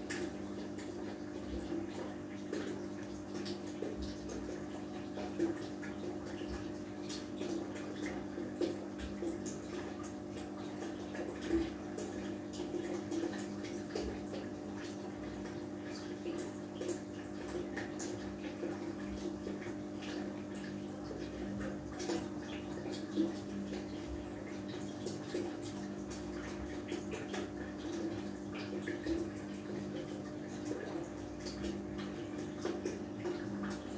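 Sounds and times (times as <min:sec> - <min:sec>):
water trickling and splashing: 0:00.0 - 0:33.9.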